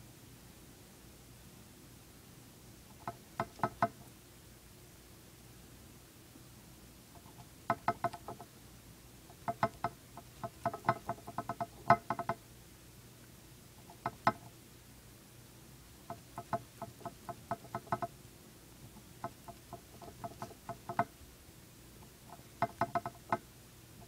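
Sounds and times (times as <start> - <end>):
hamster gnawing: 2.9 - 4.2, 7.1 - 8.6, 9.2 - 12.4, 13.2 - 14.6, 16.0 - 24.0.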